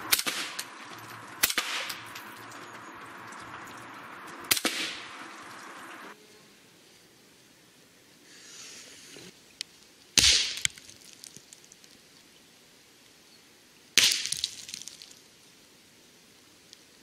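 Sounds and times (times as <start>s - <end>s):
rifle shots: 0.0s - 2.3s, 4.5s - 5.4s
small pieces clicking: 14.0s - 15.2s.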